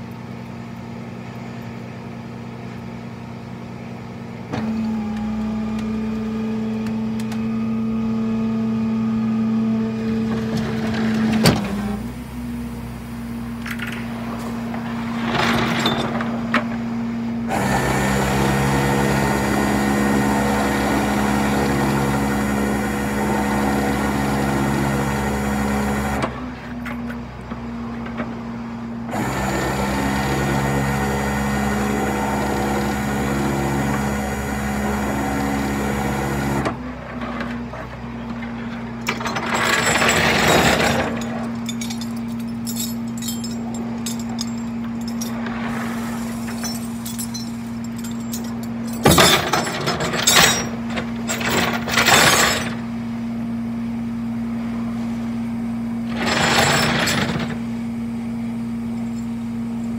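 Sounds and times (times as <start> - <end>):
tow truck engine hum: 0.0 - 59.9
metallic rattling and clanking: 38.6 - 45.8, 46.4 - 52.8, 56.1 - 57.6.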